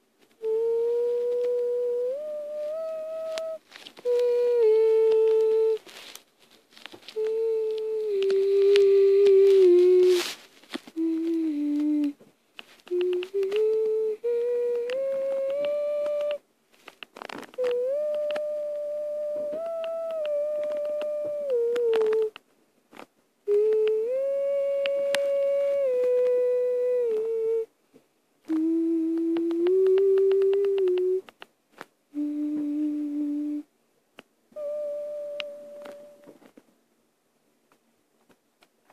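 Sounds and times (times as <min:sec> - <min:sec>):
faint clicks: 0:00.2 - 0:27.6, 0:28.4 - 0:33.0, 0:35.2 - 0:36.7
person humming: 0:00.3 - 0:16.4, 0:17.1 - 0:22.4, 0:23.4 - 0:27.7, 0:28.4 - 0:31.4, 0:32.1 - 0:33.7, 0:34.5 - 0:36.5
slow tune in long held notes: 0:00.4 - 0:06.1, 0:07.0 - 0:12.2, 0:12.9 - 0:16.4, 0:17.6 - 0:22.3, 0:23.5 - 0:27.7, 0:32.2 - 0:33.7, 0:34.6 - 0:36.3
soft clicks: 0:10.7 - 0:14.0.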